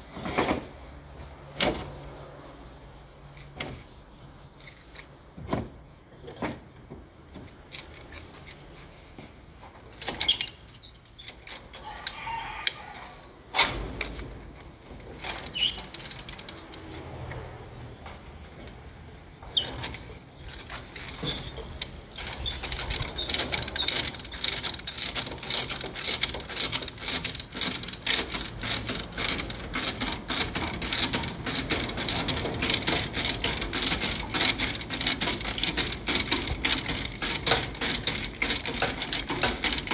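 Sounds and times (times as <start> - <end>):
chain hoist ratcheting: 9.9 - 12.8, 15.0 - 17.1, 19.6 - 39.9
scattered knocks and clicks: 19.5 - 39.9.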